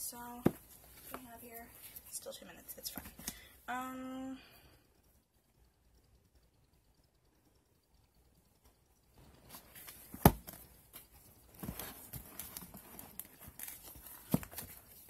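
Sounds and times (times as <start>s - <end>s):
books rustling and sliding: 9.2s - 15.0s
books thudding down: 10.1s - 10.6s.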